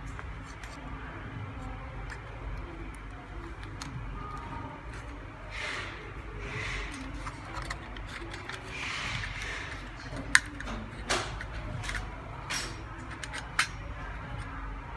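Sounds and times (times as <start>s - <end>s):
plastic housing rustling and tapping: 2.0s - 5.2s, 6.7s - 14.5s.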